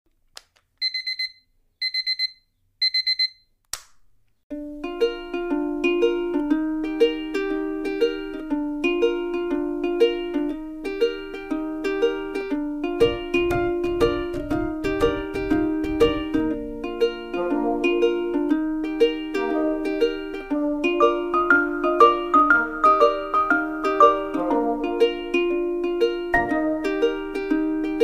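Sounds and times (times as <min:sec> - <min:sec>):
alarm clock beeping: 0:00.8 - 0:03.4
upbeat music with plucked notes: 0:04.5 - 0:28.0.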